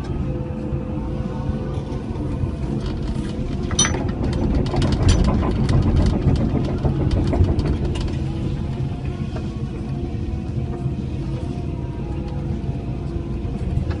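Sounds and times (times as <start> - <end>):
excavator diesel engine running: 0.0 - 14.0
sharp clicks and clatter: 2.8 - 8.3.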